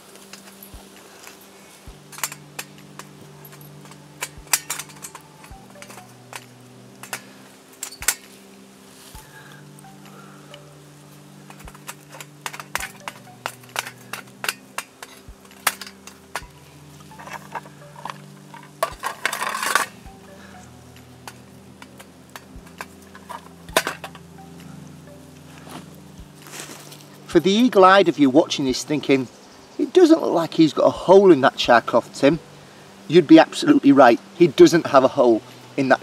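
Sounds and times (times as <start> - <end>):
soft background music: 0.0 - 36.0
metal tin clattering on stove: 2.0 - 8.3, 11.5 - 16.5, 17.1 - 20.0, 21.2 - 24.2.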